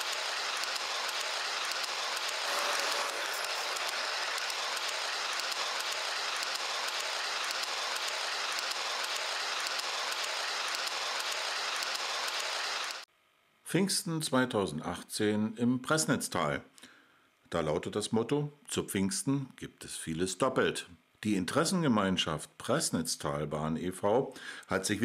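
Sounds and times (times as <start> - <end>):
train running on rails: 0.0 - 13.1.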